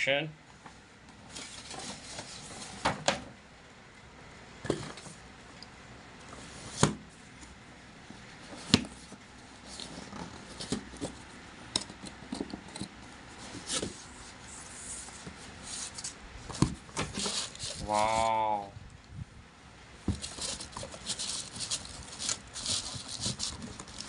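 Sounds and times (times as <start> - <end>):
paper bag rustling: 14.8 - 18.3, 20.1 - 24.0.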